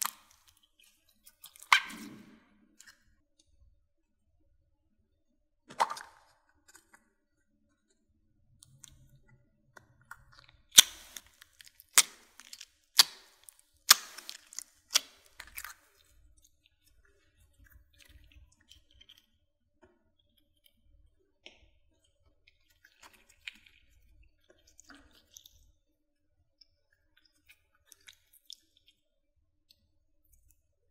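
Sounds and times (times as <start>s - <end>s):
slime squishing in hands: 0.0s - 2.9s, 10.1s - 19.3s
sharp slime pops: 1.6s - 2.4s, 10.7s - 15.7s.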